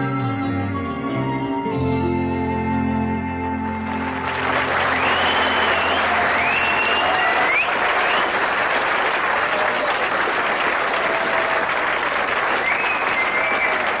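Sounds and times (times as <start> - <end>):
audience applauding: 3.8 - 14.0
whistles: 4.6 - 8.6, 12.4 - 14.0.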